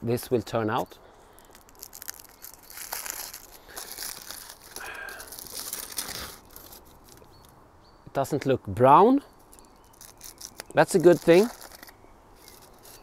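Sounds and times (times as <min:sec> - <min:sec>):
aluminium foil crinkling: 0:01.3 - 0:07.3, 0:09.4 - 0:13.0.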